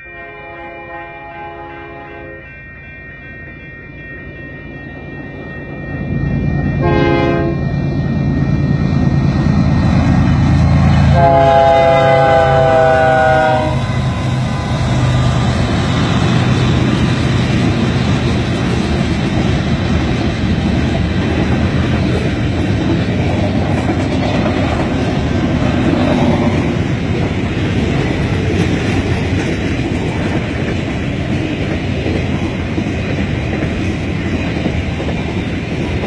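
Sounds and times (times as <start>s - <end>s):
locomotive air horn: 0.0s - 2.4s, 6.8s - 7.6s, 11.0s - 14.0s
diesel locomotive engines droning: 0.0s - 36.0s
freight cars clacking on rails: 13.8s - 36.0s.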